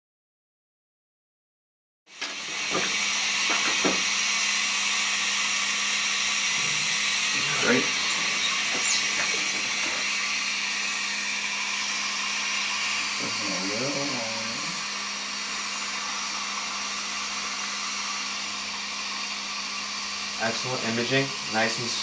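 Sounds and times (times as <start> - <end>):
dental suction hissing: 2.1 - 22.0
low hum: 6.1 - 18.4.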